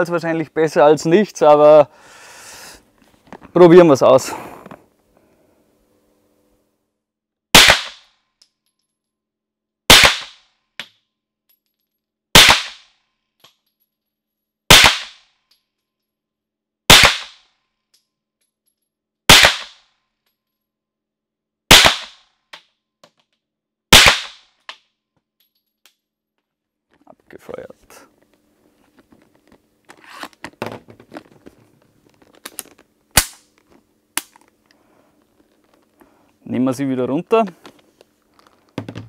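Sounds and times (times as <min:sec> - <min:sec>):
pistol shots: 0:07.6 - 0:08.0, 0:09.9 - 0:10.4, 0:12.4 - 0:12.8, 0:14.7 - 0:15.2, 0:16.9 - 0:17.4, 0:19.3 - 0:19.8, 0:21.7 - 0:22.2, 0:23.9 - 0:24.4.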